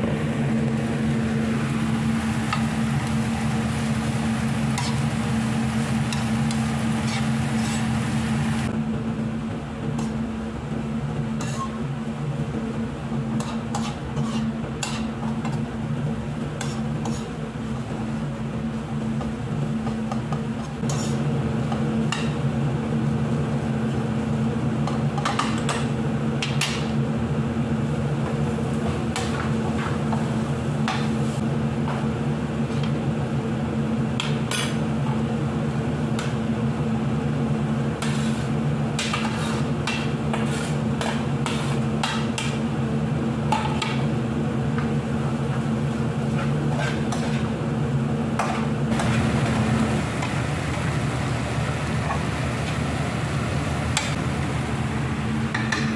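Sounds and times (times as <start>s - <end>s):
steady low hum: 0.0s - 55.9s
metal spatula scraping frying pan: 13.4s - 15.1s, 20.8s - 21.2s.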